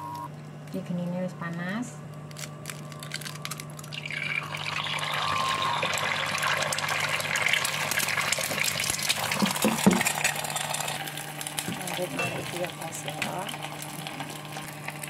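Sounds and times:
egg sizzling in oil: 0:03.8 - 0:15.0.

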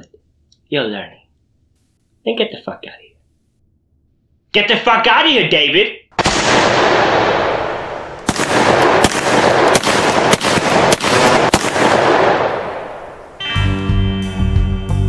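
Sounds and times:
sharp gunshots: 0:06.1 - 0:13.4
echoing gunshot bang: 0:06.2 - 0:13.4.

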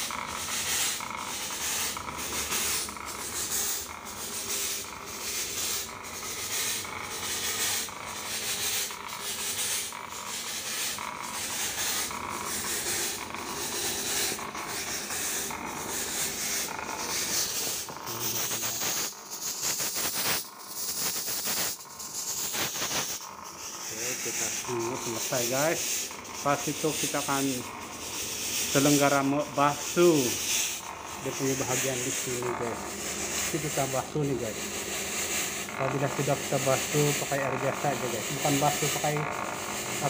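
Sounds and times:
fogging machine hissing: 0:00.0 - 0:40.0
pump pulsing beat: 0:00.0 - 0:40.0.

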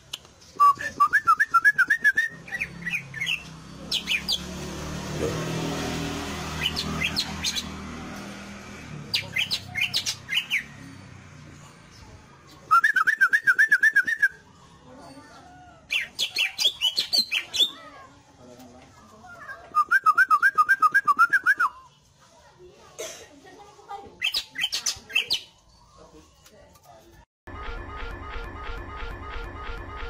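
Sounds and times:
bird singing: 0:00.4 - 0:04.6, 0:06.5 - 0:07.8, 0:09.1 - 0:18.2, 0:24.2 - 0:26.8.

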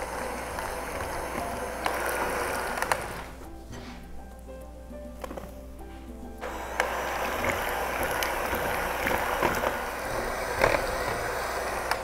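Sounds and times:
batter being beaten in a bowl: 0:06.8 - 0:11.6.

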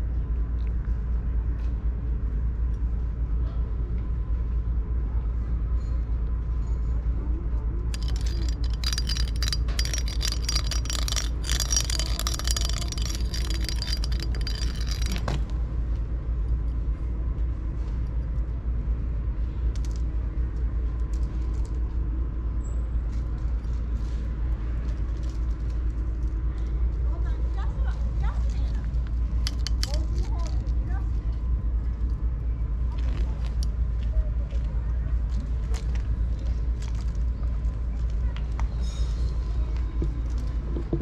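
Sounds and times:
steady low rumble: 0:07.6 - 0:38.7
wire toy jingling on concrete: 0:08.0 - 0:15.5, 0:29.3 - 0:31.0.

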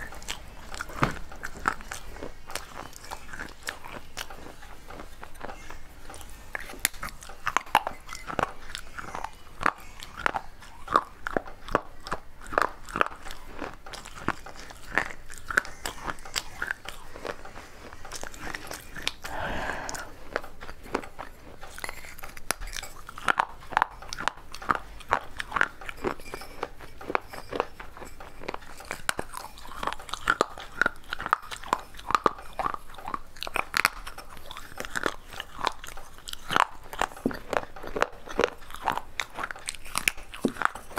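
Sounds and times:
crunching and chewing clay: 0:00.0 - 0:40.9.

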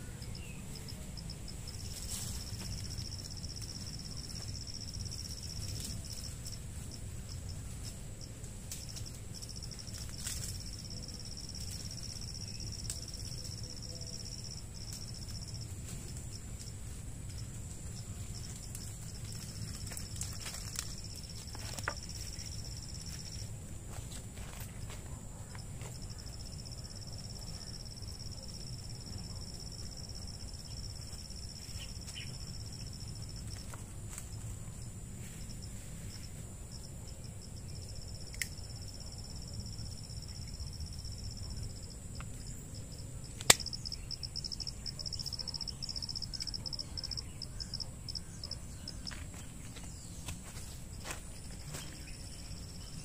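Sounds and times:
crickets trilling: 0:00.0 - 0:53.0
sharp click: 0:43.4 - 0:43.7.

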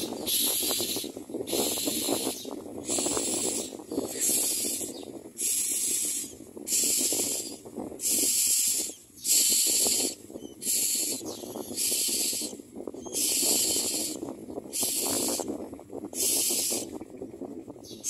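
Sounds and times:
nestlings begging calls: 0:00.0 - 0:17.1, 0:17.8 - 0:18.0.

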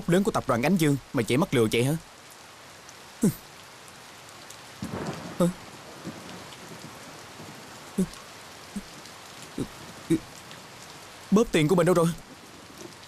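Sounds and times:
rain on pavement and foliage: 0:00.0 - 0:13.0.

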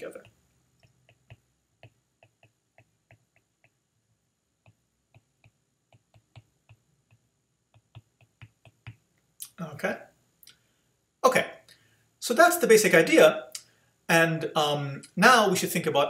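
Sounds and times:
stylus tapping on tablet: 0:00.2 - 0:03.8, 0:04.6 - 0:09.0.

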